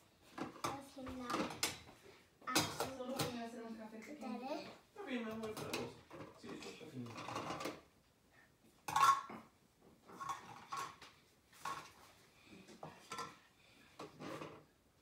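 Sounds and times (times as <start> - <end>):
toy dishes clinking and knocking: 5.4 - 7.9, 8.9 - 9.4, 10.1 - 12.0.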